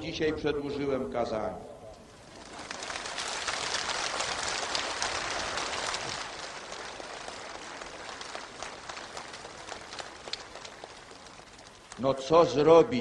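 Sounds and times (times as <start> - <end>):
crowd applauding: 2.1 - 12.1.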